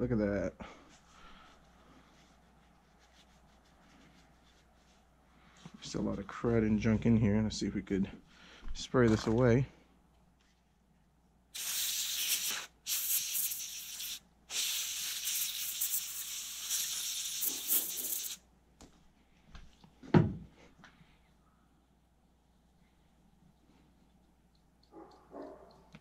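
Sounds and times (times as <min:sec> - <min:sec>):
aerosol spray hissing: 0:11.6 - 0:18.4
thump: 0:20.1 - 0:20.4.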